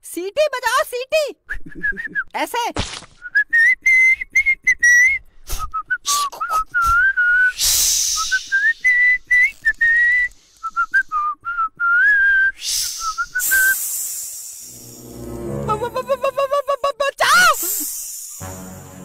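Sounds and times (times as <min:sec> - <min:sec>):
man whistling warbling tune: 0:03.3 - 0:13.8
breathy hiss: 0:07.6 - 0:08.8, 0:10.2 - 0:11.1, 0:12.6 - 0:16.2, 0:17.5 - 0:18.6.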